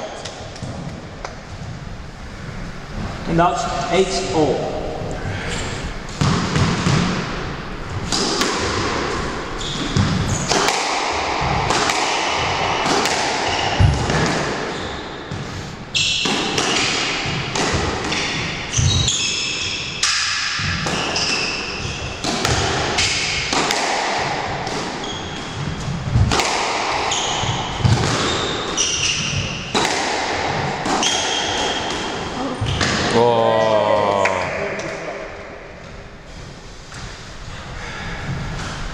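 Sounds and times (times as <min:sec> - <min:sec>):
squash ball hitting rackets and walls: 0:00.0 - 0:01.8, 0:05.7 - 0:36.0
shoes squeaking on wooden floor: 0:09.5 - 0:10.6, 0:18.7 - 0:19.9, 0:25.0 - 0:26.0, 0:27.0 - 0:29.8.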